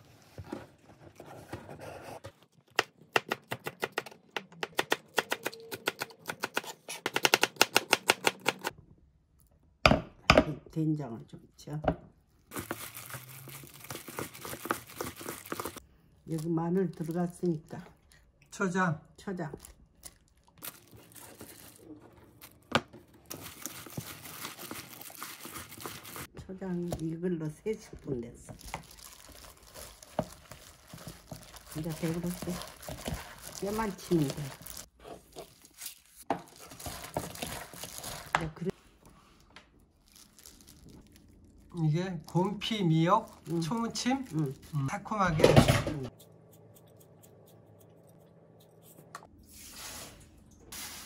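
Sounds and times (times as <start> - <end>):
knife chopping on plastic board: 2.8 - 8.7
plastic glove crinkling: 12.2 - 17.8, 20.4 - 22.6, 23.2 - 27.2, 28.0 - 45.1.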